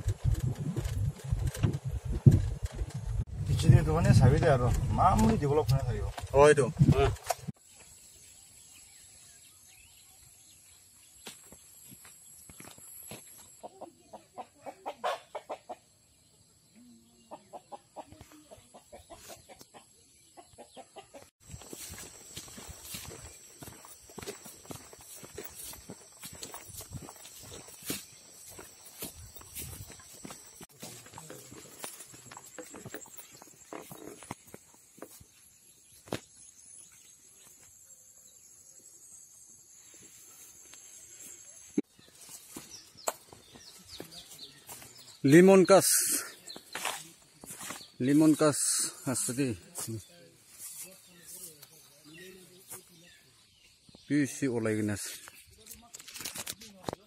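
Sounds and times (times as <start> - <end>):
chicken clucking: 13.6 - 15.9, 17.2 - 21.3
insects chirring: 21.4 - 57.0.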